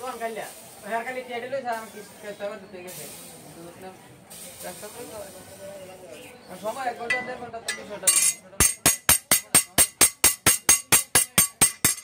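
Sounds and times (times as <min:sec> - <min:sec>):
hammer striking steel blade: 0:07.1 - 0:12.0.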